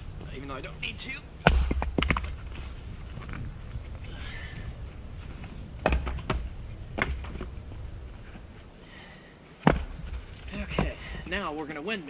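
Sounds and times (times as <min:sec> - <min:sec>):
low steady rumble: 0:00.0 - 0:11.8
firewood pieces knocking together: 0:01.4 - 0:02.5, 0:05.8 - 0:07.5, 0:09.6 - 0:11.2.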